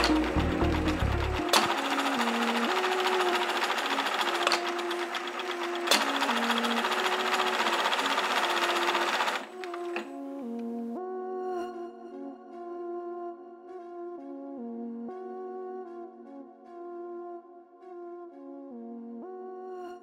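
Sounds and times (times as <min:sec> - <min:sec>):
sewing machine running: 0:00.0 - 0:10.1
background music: 0:00.0 - 0:20.0.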